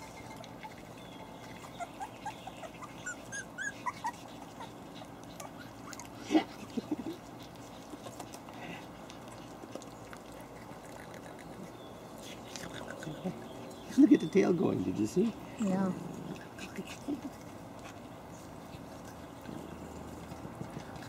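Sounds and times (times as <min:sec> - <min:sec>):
puppy yelping: 0:00.0 - 0:06.2
puppies whimpering: 0:00.0 - 0:08.8.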